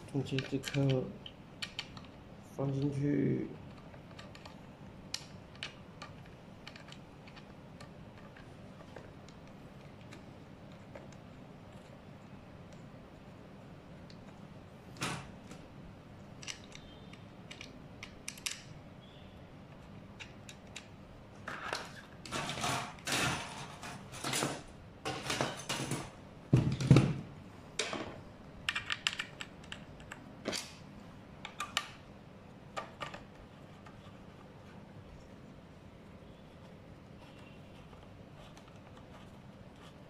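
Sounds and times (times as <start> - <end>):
scooter parts clicking: 16.4 - 18.7.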